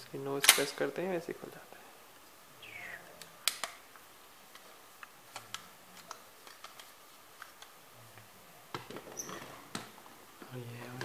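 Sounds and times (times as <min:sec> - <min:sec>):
sharp plastic snap: 0:00.4 - 0:00.8, 0:03.2 - 0:03.8.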